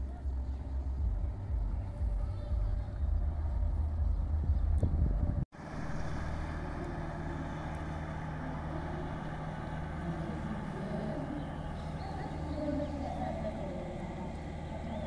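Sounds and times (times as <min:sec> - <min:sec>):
boat engine droning: 0:00.0 - 0:15.0
wind noise: 0:02.6 - 0:05.4.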